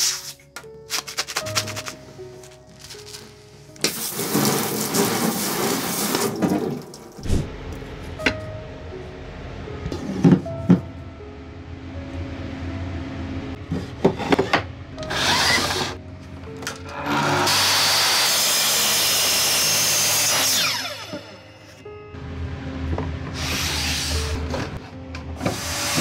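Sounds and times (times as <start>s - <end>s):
miter saw cutting wood: 15.0s - 16.0s, 16.9s - 21.8s.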